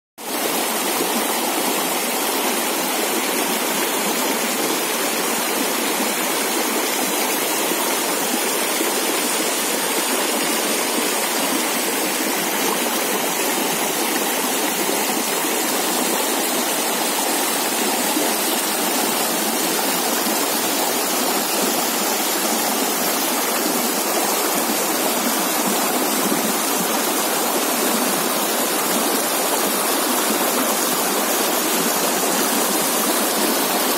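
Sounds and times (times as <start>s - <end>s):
stream rushing over rocks: 0.2s - 33.9s.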